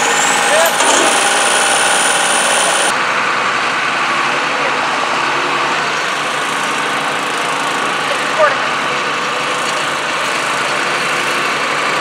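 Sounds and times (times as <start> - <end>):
diesel tractor engines idling: 0.0 - 2.9.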